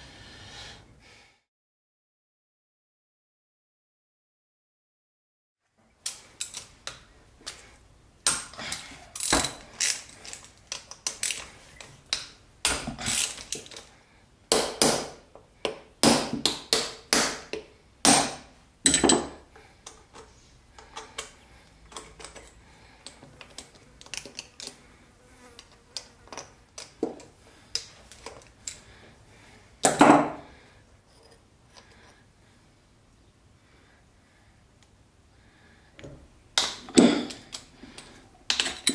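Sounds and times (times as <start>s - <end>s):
metal tools clinking and rattling: 37.0s - 38.9s.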